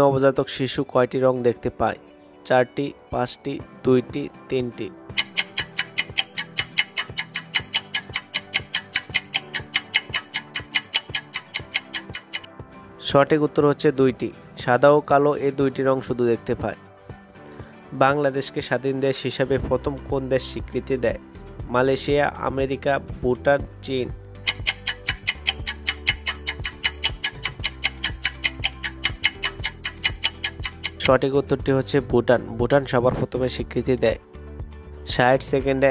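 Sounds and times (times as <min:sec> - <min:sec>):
soft background music: 0:00.0 - 0:35.9
rapid clock-like ticks: 0:05.2 - 0:12.5, 0:24.5 - 0:31.2.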